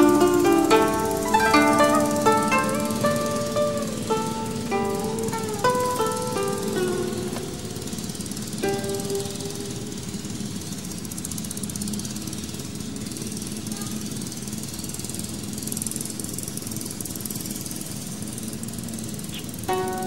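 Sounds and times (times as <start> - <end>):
low hum: 0.0 - 11.2
even hiss: 0.0 - 15.7, 18.6 - 20.0.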